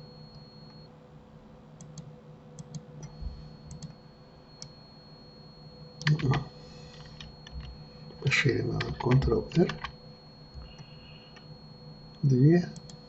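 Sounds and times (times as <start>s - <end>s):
faint electrical hum: 0.0s - 13.0s
faint computer clicks: 8.7s - 10.0s, 10.6s - 11.5s.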